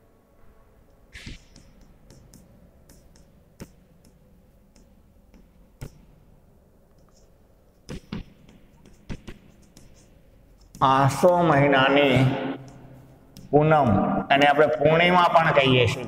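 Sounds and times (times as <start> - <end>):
chalk knocks: 1.1 - 13.6
chalk writing on blackboard: 1.1 - 13.6.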